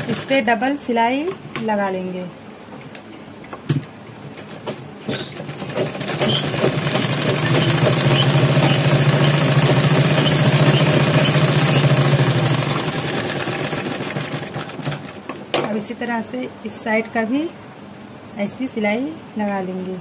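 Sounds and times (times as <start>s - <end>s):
sewing machine stitching: 5.1s - 15.2s.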